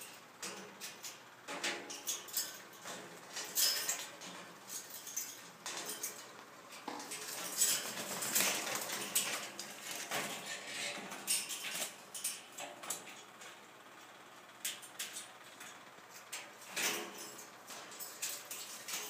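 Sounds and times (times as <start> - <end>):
wire birdcage rattling: 0.0 - 13.6, 14.7 - 19.0.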